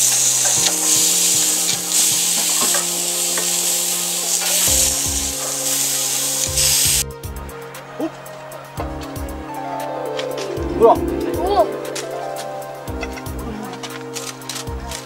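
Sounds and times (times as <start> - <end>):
steaks sizzling in a skillet: 0.0 - 7.0.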